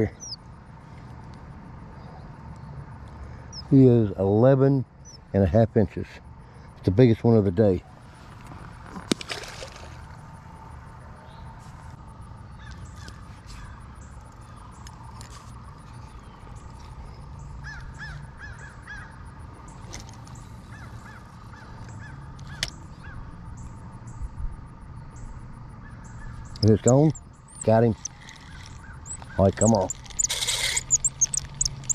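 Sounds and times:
faint bird chirps: 0:00.0 - 0:00.4, 0:25.2 - 0:31.9
fishing reel clicks: 0:26.6 - 0:31.9.

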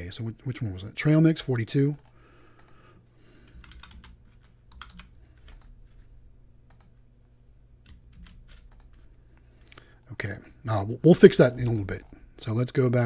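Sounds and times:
faint low hum: 0:00.0 - 0:13.0
keyboard typing: 0:03.4 - 0:06.0, 0:06.6 - 0:07.0, 0:07.8 - 0:09.1.

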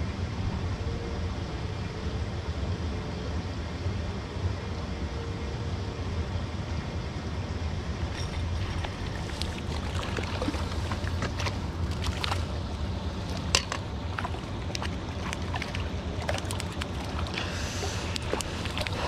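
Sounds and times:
moving water: 0:08.1 - 0:19.0
wind rumbling: 0:08.2 - 0:19.0.

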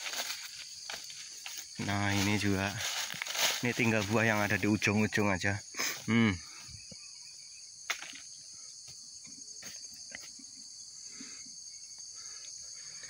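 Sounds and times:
clicks and rustles in undergrowth: 0:00.0 - 0:05.2
high-pitched insect chorus: 0:00.0 - 0:13.0.

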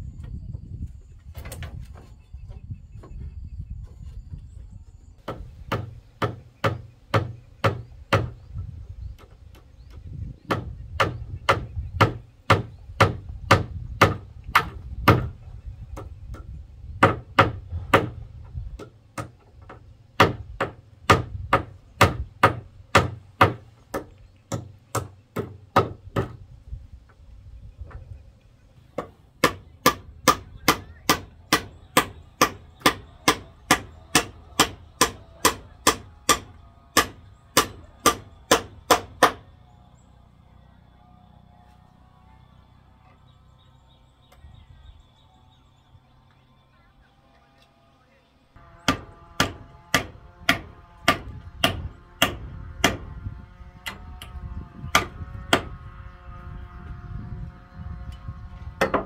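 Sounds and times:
hammer striking nails into wood: 0:05.2 - 0:08.4, 0:10.4 - 0:15.4, 0:17.0 - 0:18.2, 0:18.8 - 0:26.4, 0:29.0 - 0:39.5, 0:48.8 - 0:53.1, 0:54.9 - 0:55.7, 0:58.8 - 0:59.0.

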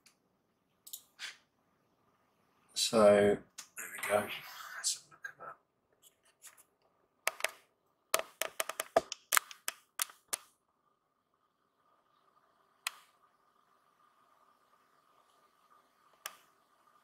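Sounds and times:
faint steady hum: 0:00.0 - 0:17.0
sharp clicks and taps: 0:00.8 - 0:01.1, 0:07.2 - 0:10.5.

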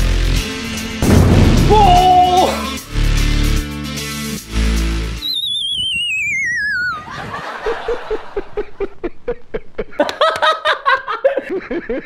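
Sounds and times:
wobbling whistle sliding down: 0:05.2 - 0:07.3
rapid snickering laughter: 0:07.0 - 0:12.0.

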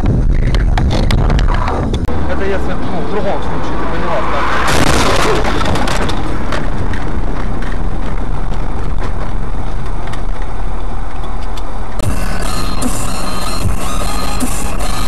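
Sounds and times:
car driving on road: 0:00.0 - 0:15.0.

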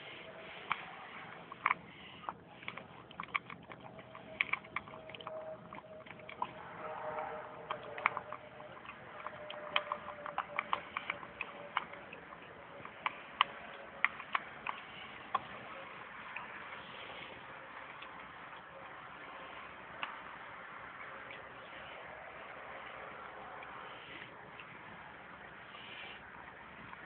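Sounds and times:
puppy eating from metal bowl: 0:00.0 - 0:23.8.

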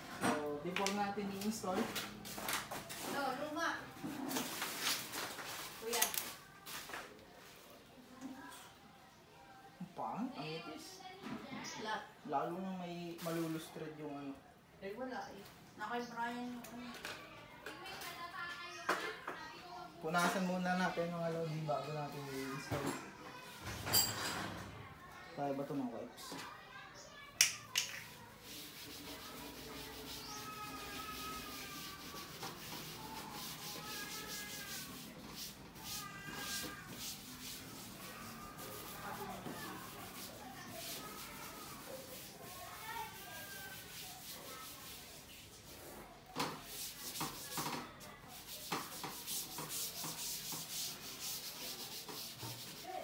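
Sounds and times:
wet wipe rubbing surface: 0:28.0 - 0:45.9, 0:48.3 - 0:53.0.

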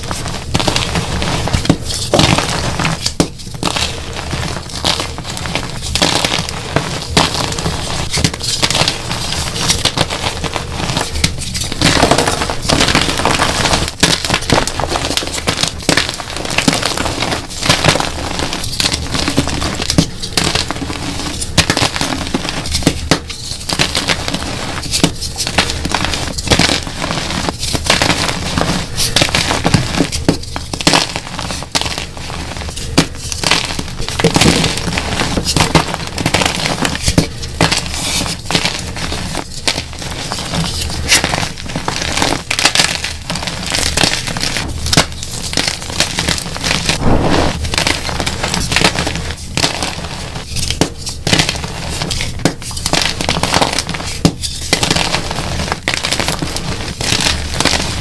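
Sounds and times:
chalk blocks crunching by hand: 0:00.0 - 0:58.0.

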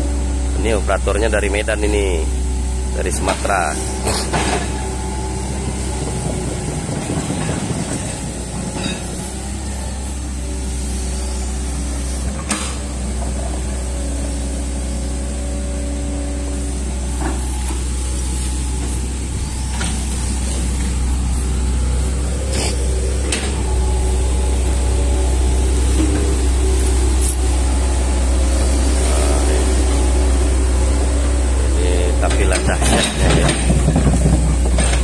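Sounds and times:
excavator diesel engine running: 0:00.0 - 0:35.0
metal clanks from excavator arm: 0:07.1 - 0:09.3, 0:32.3 - 0:35.0.

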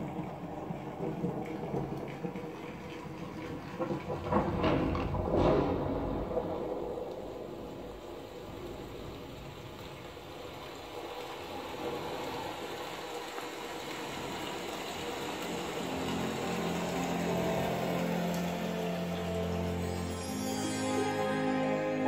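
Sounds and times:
held musical chords: 0:15.8 - 0:22.0.

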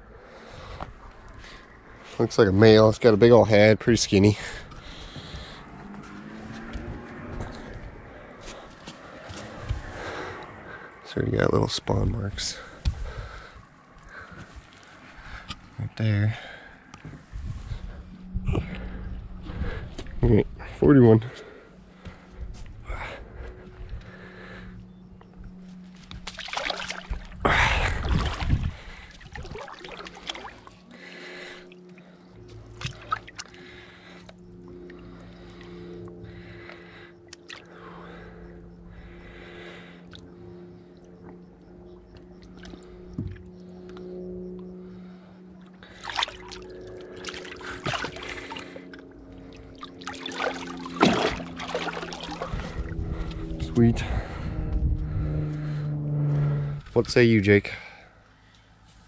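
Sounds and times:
steady low hum: 0:00.0 - 0:59.0
water sloshing and dripping: 0:12.6 - 0:15.8, 0:25.9 - 0:38.2, 0:40.1 - 0:43.7, 0:45.6 - 0:53.6
fish splashing into water: 0:26.2 - 0:27.4, 0:28.0 - 0:30.7, 0:32.8 - 0:33.5, 0:45.9 - 0:48.8, 0:49.5 - 0:52.8.

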